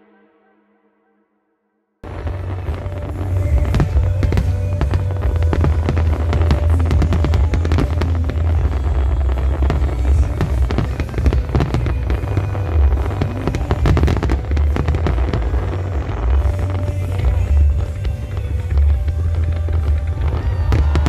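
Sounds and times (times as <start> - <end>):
deep rumble: 2.0 - 21.0
fireworks bangs and crackles: 2.0 - 21.0.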